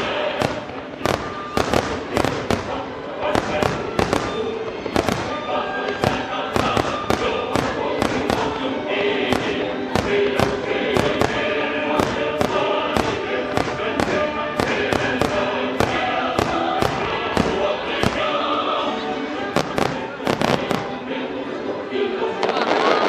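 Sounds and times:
music with choral singing: 0.0 - 23.0
firework shells bursting: 9.3 - 18.3.

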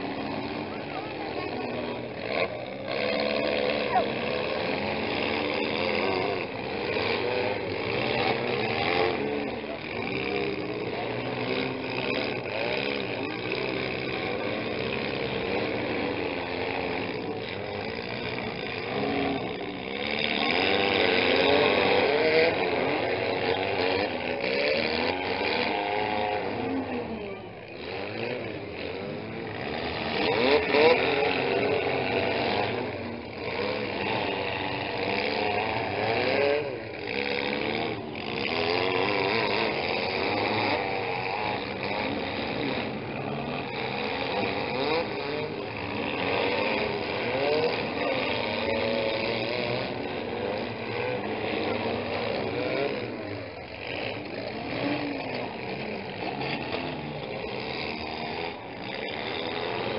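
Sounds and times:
small car engines revving: 0.0 - 59.9.

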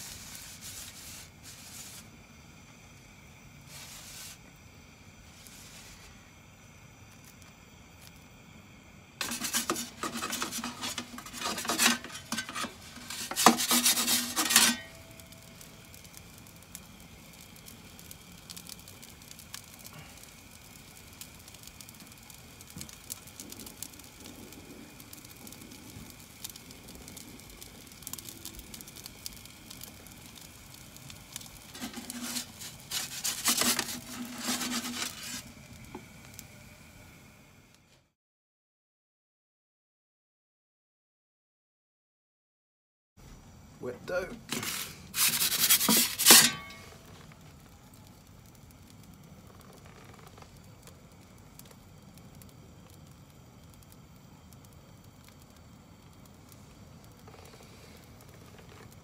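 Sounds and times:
gas burner hiss: 0.0 - 38.2, 43.3 - 59.0
metal peel scraping stone: 9.2 - 15.2, 31.4 - 35.5, 44.5 - 47.0.

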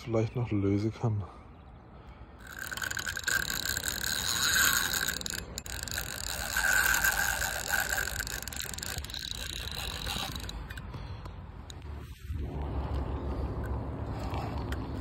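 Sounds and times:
fishing reel whirring: 2.3 - 12.2.

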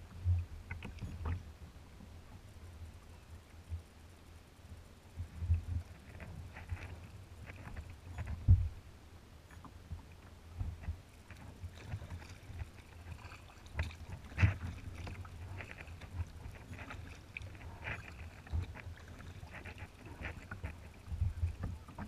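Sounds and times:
waves lapping against kayak hull: 5.1 - 22.0.

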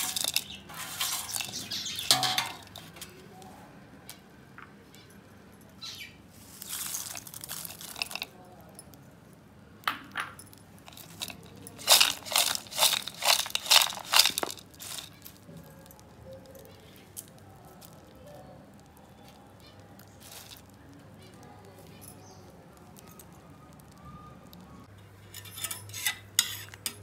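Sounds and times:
fried snacks tossed in a bowl: 0.0 - 3.2, 6.4 - 8.7, 10.8 - 22.1.

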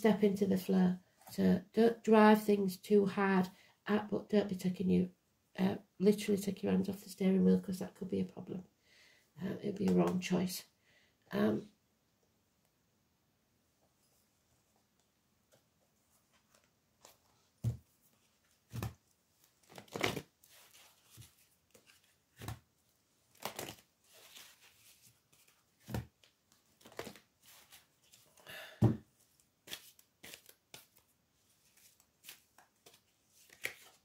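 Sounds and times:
cards being shuffled: 18.7 - 22.6, 23.3 - 28.4, 29.4 - 34.0.

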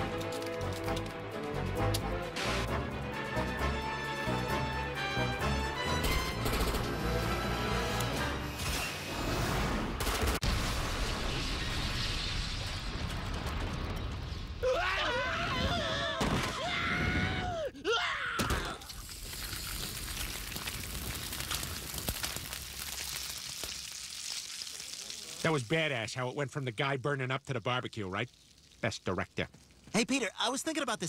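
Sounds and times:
fire burning: 0.0 - 3.7, 7.2 - 17.6, 18.6 - 30.6
explosion: 9.2 - 14.9
man screaming in agony: 14.6 - 18.9.

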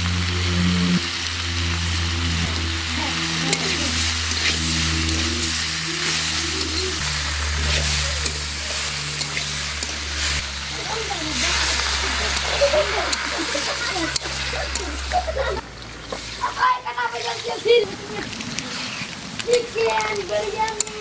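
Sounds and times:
background music with bass: 0.0 - 15.6
curry frying and sizzling: 0.0 - 21.0
metal spatula scraping pan: 3.4 - 15.5.

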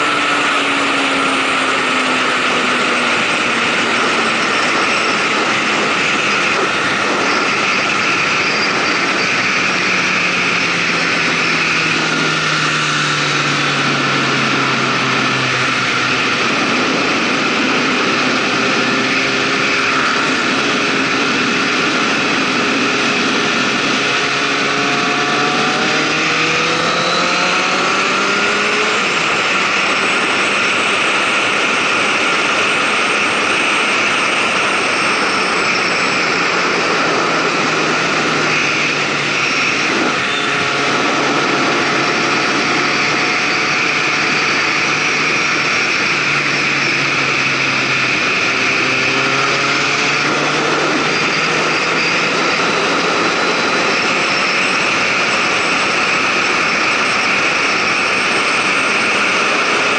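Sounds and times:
motorcycle engine hum: 0.0 - 59.9
wind and road noise: 0.0 - 59.9.

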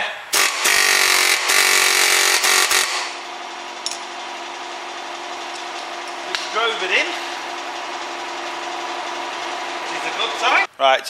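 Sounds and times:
steady mechanical hum: 0.0 - 11.0
pneumatic impact wrench hammering: 0.3 - 3.2.

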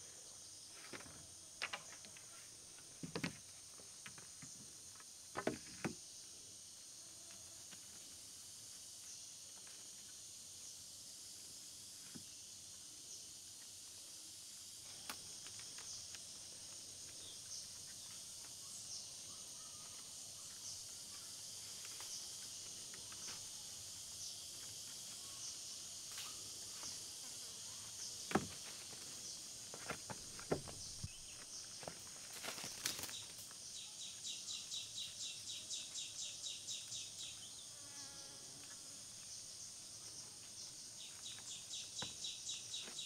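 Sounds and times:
insects chorus: 0.0 - 43.0
wooden poles knocking: 29.8 - 31.1.

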